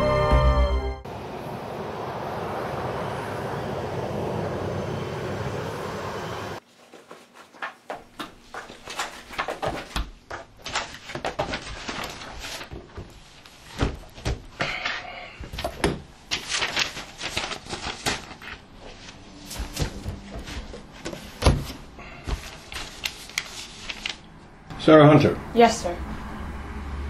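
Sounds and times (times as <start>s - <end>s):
paper rustling and flicking: 6.8s - 24.3s.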